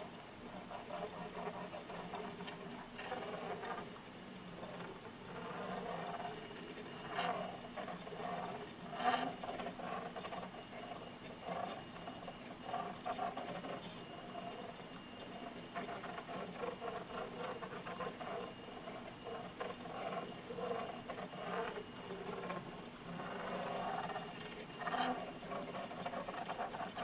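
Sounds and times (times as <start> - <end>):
drawing arm motors humming: 0.0 - 27.0.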